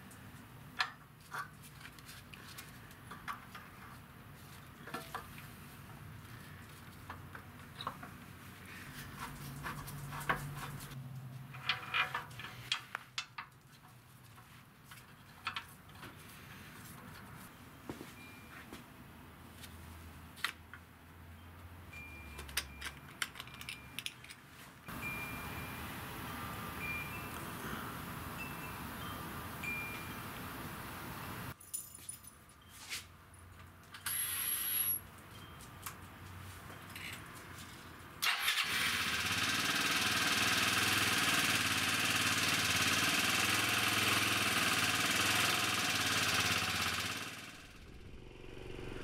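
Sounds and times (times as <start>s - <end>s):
light metallic clicks and tinkles: 21.4s - 27.8s, 31.5s - 34.1s, 35.0s - 37.4s
rustle: 24.3s - 33.3s
low hum: 47.3s - 49.0s.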